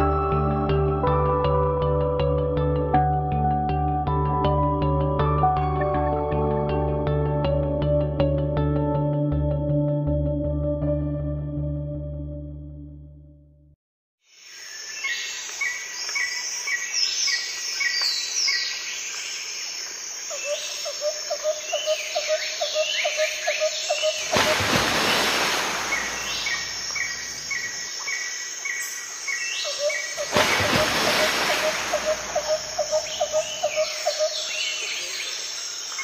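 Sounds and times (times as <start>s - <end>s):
bird chirps and calls: 32.0s - 36.0s.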